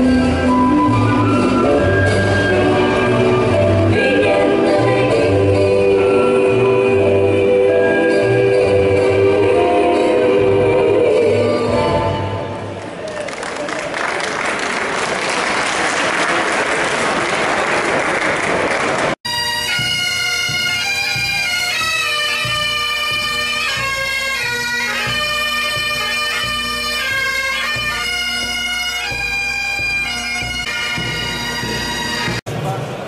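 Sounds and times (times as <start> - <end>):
audience applauding: 12.8 - 19.2
bagpipe band playing marching tune: 19.3 - 32.4.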